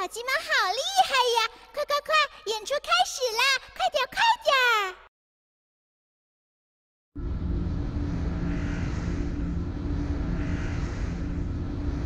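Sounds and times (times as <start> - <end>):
cartoon rocket engine drone: 7.2 - 12.0.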